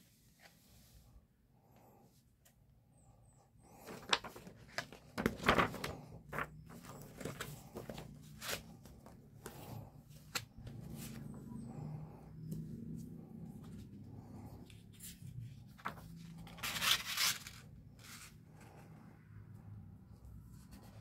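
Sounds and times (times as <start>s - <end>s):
paper rustling and crinkling: 3.7s - 11.4s, 14.9s - 18.3s.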